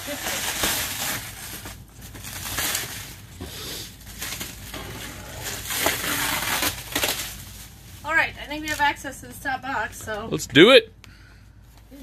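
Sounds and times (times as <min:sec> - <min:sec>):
plastic stretch wrap crinkling: 0:00.0 - 0:08.8.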